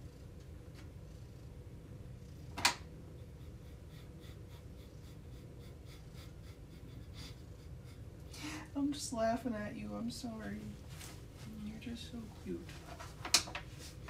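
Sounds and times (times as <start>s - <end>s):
cat purring: 0.0s - 9.0s.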